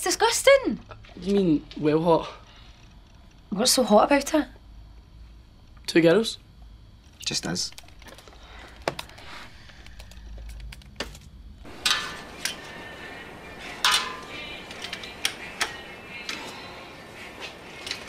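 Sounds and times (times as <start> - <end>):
steady background hiss: 0.0 - 18.0
metal tools clinking: 11.7 - 18.0.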